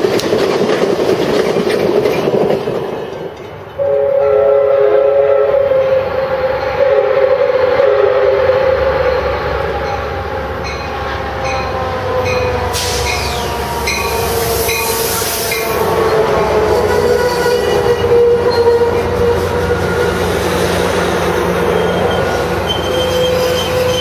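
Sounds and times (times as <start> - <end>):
train horn blasts: 3.8 - 9.8, 10.8 - 20.2
diesel locomotive rumble: 9.4 - 24.0
locomotive bell ringing: 9.7 - 20.1
loud hiss: 12.7 - 13.6, 14.2 - 15.8.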